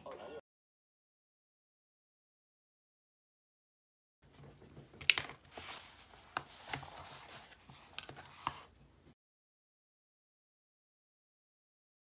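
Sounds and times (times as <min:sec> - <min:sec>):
book pages rustling: 0:04.3 - 0:08.8.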